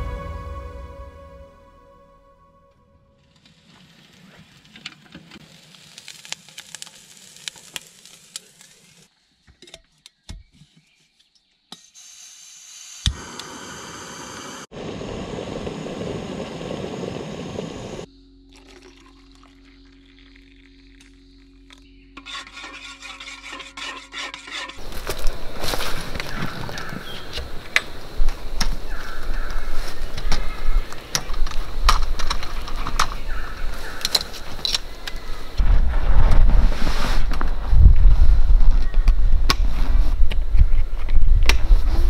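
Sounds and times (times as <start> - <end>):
gas burner hissing: 13.0 - 18.1.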